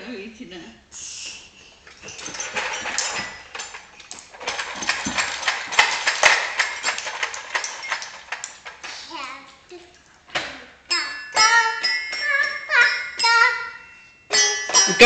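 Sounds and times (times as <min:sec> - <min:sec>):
plastic toy clicking and rattling: 0:02.0 - 0:09.0.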